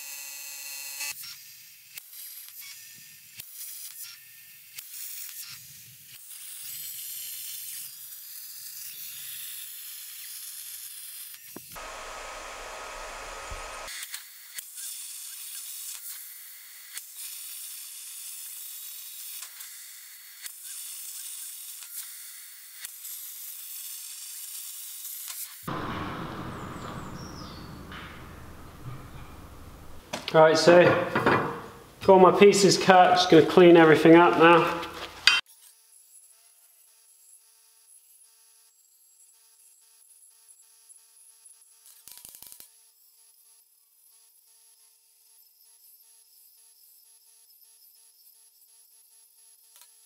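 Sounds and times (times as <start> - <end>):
plasma torch hissing: 11.8 - 13.9, 25.7 - 30.1
low rumbling noise: 25.7 - 30.1.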